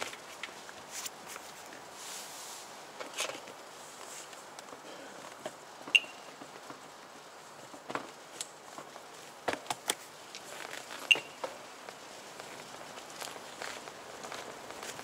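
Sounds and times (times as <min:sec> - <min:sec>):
faint hiss: 0:00.0 - 0:15.0
bicycle rattling on cobblestones: 0:07.6 - 0:15.0.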